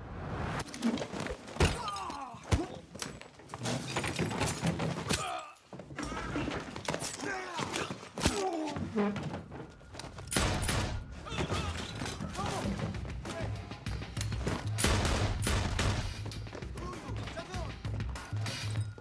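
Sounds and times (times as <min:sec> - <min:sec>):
punches and heavy thuds: 0:14.4 - 0:16.9.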